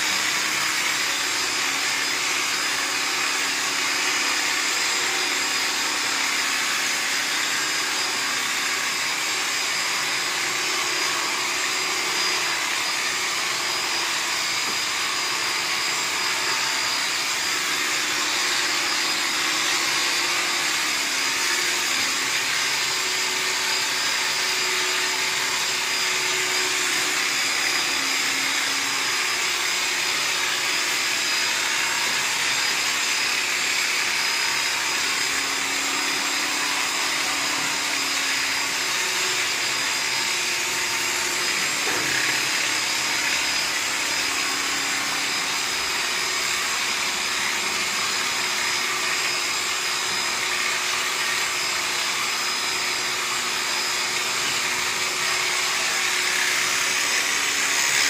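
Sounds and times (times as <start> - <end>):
electric clipper buzzing: 0.0 - 58.0.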